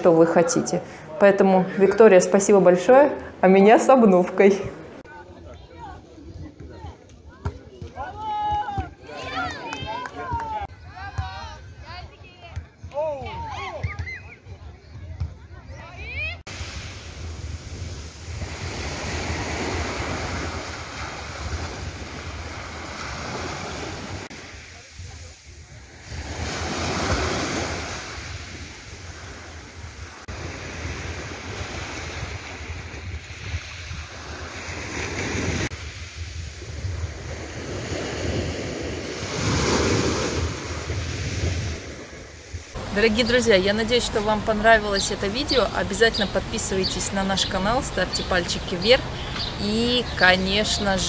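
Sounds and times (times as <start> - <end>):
sea waves breaking on beach: 16.5 - 43.5
wind rumble on microphone: 28.3 - 39.5.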